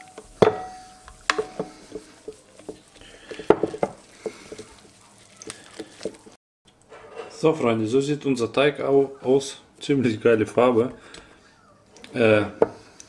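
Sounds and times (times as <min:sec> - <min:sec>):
wooden spoon stirring dough: 0:00.0 - 0:06.4, 0:08.6 - 0:13.0.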